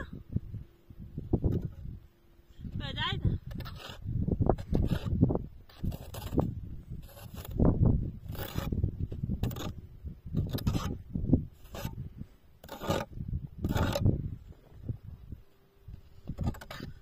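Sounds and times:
hands scraping crusted snow: 0:03.5 - 0:08.8.

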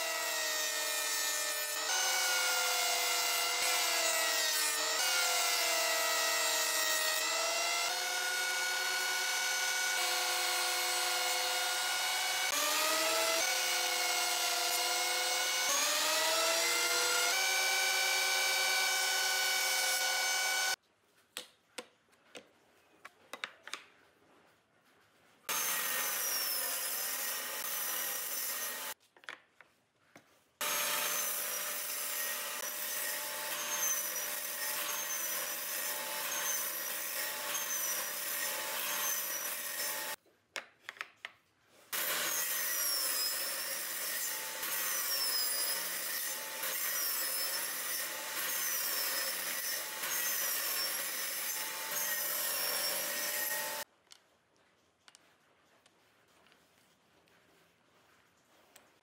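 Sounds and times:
table saw cutting wood: 0:00.0 - 0:20.8, 0:25.5 - 0:29.0, 0:30.6 - 0:40.2, 0:41.9 - 0:53.9.

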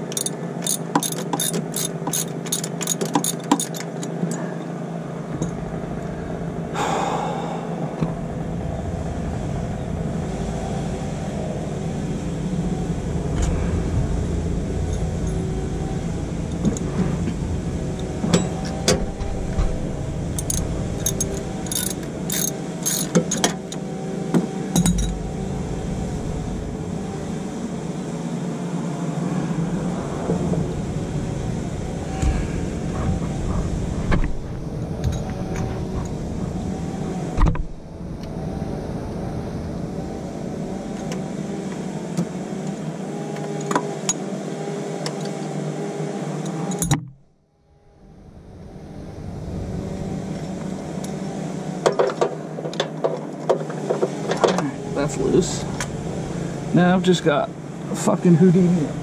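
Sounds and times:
hand tools clicking on metal: 0:00.1 - 0:04.4
steady hum: 0:01.8 - 0:43.1, 0:46.8 - 0:51.8.

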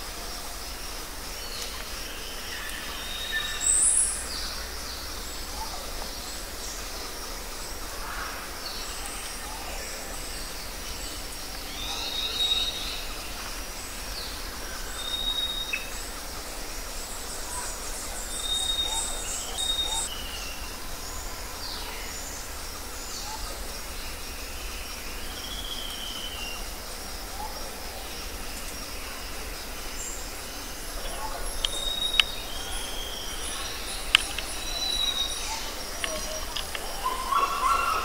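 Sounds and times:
steady hiss: 0:00.0 - 0:38.0
wild bird calls: 0:27.3 - 0:38.0.

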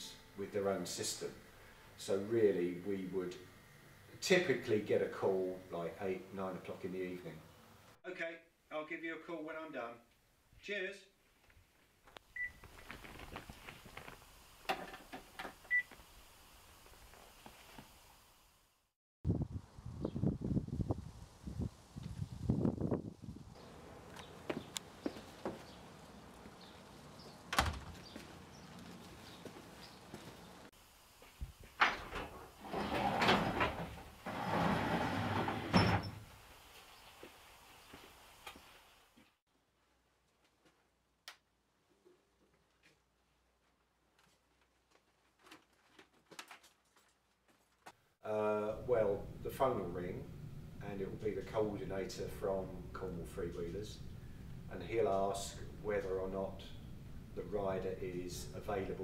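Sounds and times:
garage door rattling: 0:27.5 - 0:28.1, 0:31.8 - 0:36.3.

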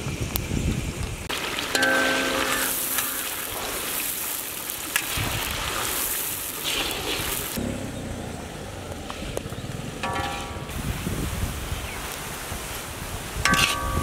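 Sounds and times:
onions sizzling in hot oil: 0:01.3 - 0:07.6.

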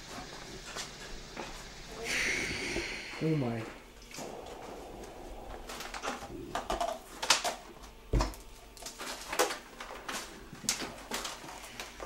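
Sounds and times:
game console and cables rattling: 0:05.4 - 0:12.0.

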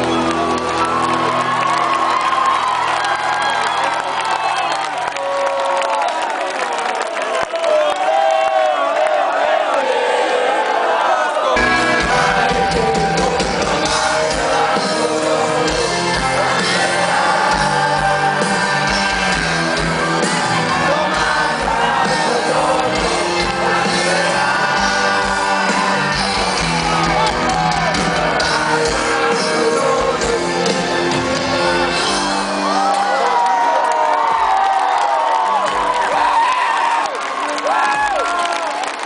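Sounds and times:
fans shouting and singing along: 0:00.0 - 0:39.0
live rock band and singer: 0:11.6 - 0:33.0.

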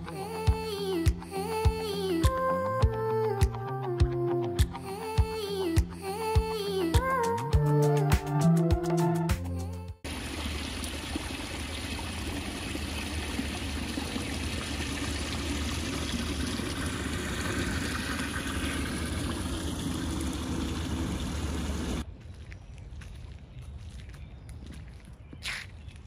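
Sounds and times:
music: 0:00.0 - 0:10.0.

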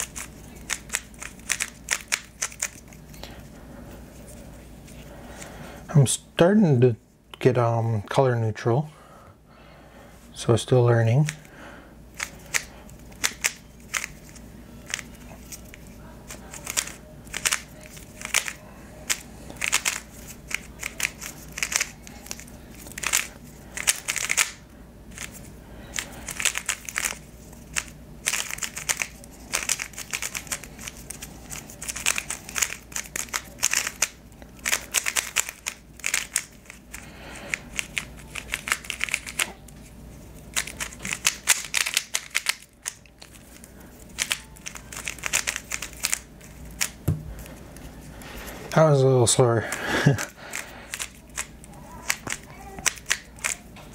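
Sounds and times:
plastic puzzle cube clicking: 0:50.5 - 0:53.6.

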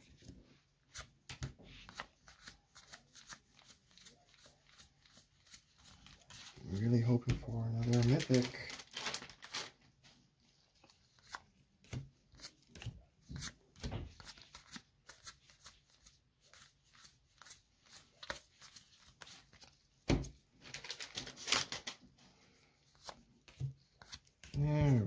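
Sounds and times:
cards clicking and rustling: 0:00.9 - 0:09.7, 0:10.8 - 0:19.8, 0:20.6 - 0:22.0.

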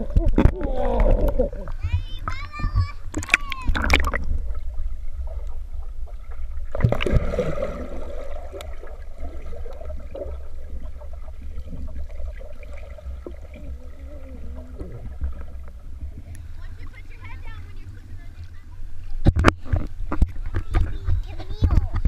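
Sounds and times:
child plunging into water: 0:00.0 - 0:16.3
low underwater rumble: 0:00.0 - 0:22.0
underwater bubbling and gurgling: 0:00.0 - 0:22.0.

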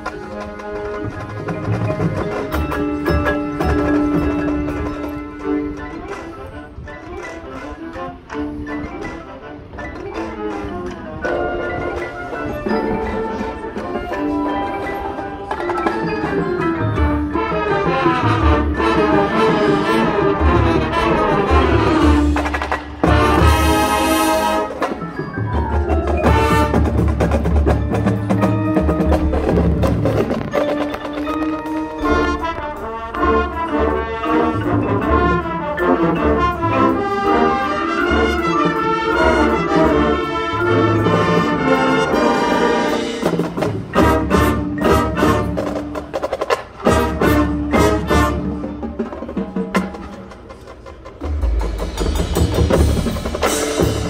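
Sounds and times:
marching band playing: 0:00.0 - 0:54.0
marimbas: 0:00.0 - 0:54.0
sharp percussion hits: 0:40.9 - 0:54.0.

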